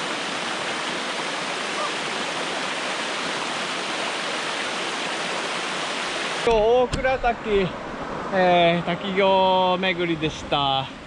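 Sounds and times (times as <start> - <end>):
small waterfall rushing: 0.0 - 6.7.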